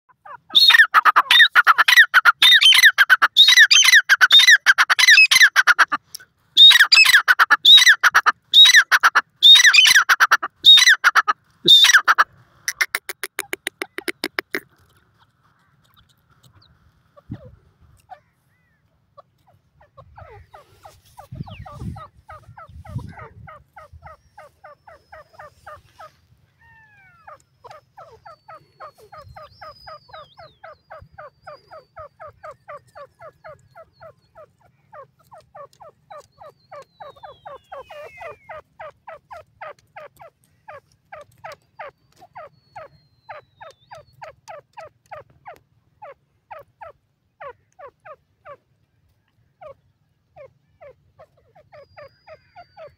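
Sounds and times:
bird calling rapid repeated notes: 0:00.2 - 0:06.0, 0:06.6 - 0:14.7, 0:27.2 - 0:48.6
faint high bird whistling: 0:36.4 - 0:38.5.

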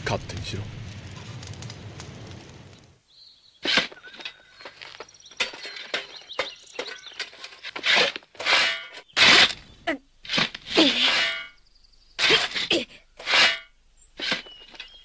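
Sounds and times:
shovel scraping into stony dirt: 0:03.6 - 0:11.6, 0:12.2 - 0:15.0.

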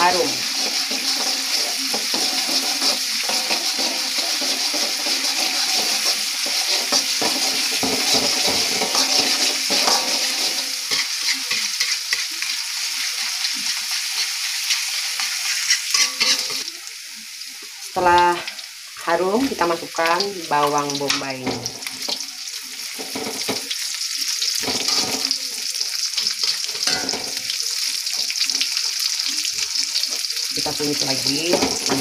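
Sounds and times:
metal spatula scraping pan: 0:00.0 - 0:12.6, 0:13.2 - 0:16.7
garlic sizzling in hot oil: 0:00.0 - 0:32.0.

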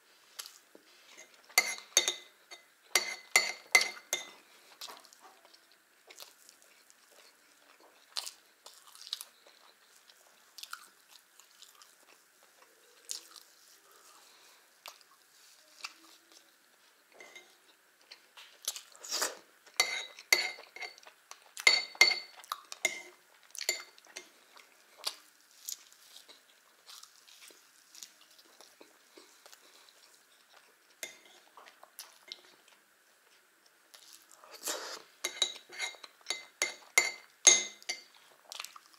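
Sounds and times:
metal spoon scraping ceramic saucer: 0:19.8 - 0:21.0, 0:35.2 - 0:36.4.

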